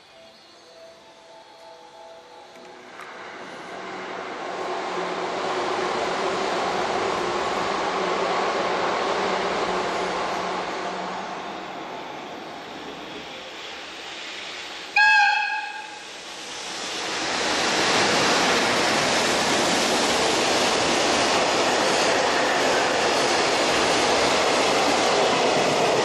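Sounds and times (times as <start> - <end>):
train running noise: 0.0 - 26.0
locomotive horn blast: 15.0 - 16.0.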